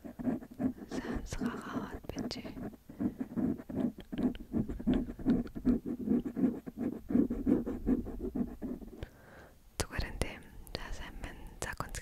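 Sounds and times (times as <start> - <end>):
quick irregular scratching: 0.0 - 9.0.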